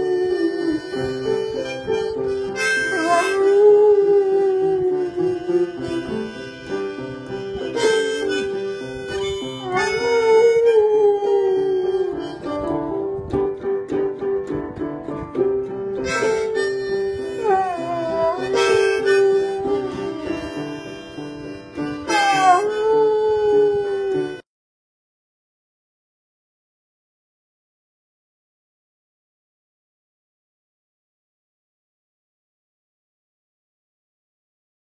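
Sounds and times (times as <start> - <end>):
harmonica notes: 0.0 - 24.4
dog howling: 2.9 - 6.4, 9.6 - 12.4, 17.3 - 20.8, 22.1 - 24.4.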